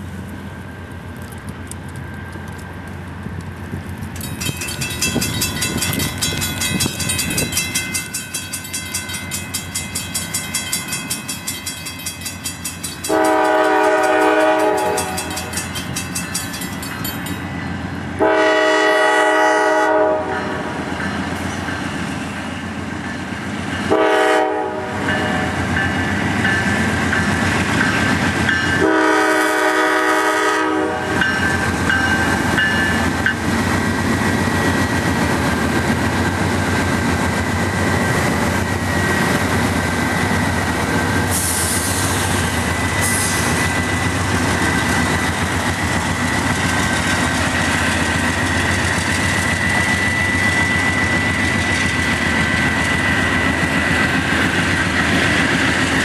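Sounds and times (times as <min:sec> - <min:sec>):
train cars rumbling past: 0:00.0 - 0:56.0
train air horn: 0:13.1 - 0:15.5, 0:18.2 - 0:20.8, 0:23.9 - 0:25.6, 0:28.8 - 0:31.4.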